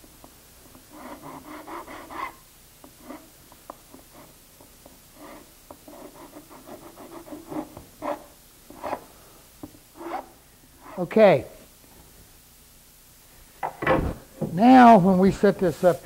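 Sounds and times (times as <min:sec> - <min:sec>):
hand file rubbing on wood: 0:00.7 - 0:02.4, 0:05.1 - 0:09.0, 0:10.0 - 0:11.1.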